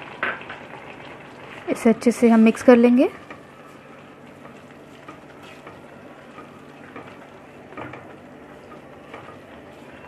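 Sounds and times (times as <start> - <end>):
food bubbling in a pan: 0.0 - 10.0
spatula scraping and tapping: 4.4 - 10.0.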